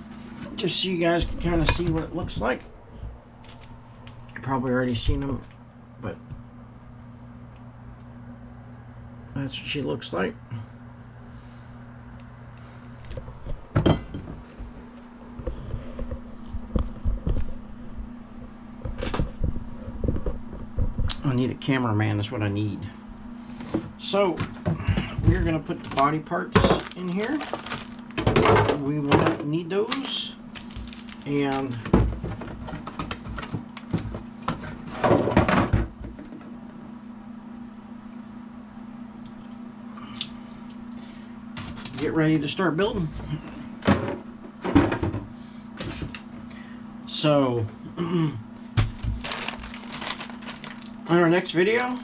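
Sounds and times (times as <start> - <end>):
low hum: 0.0 - 51.2
plastic parts clicking and rustling: 25.3 - 35.5, 49.2 - 51.2.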